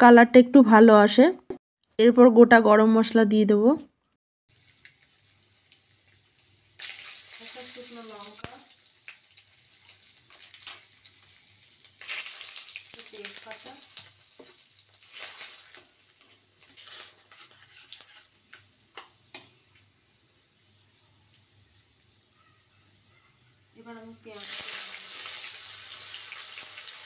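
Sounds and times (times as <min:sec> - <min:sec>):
crackling bursts: 0:04.5 - 0:20.6
spices sizzling in hot oil: 0:04.5 - 0:27.0.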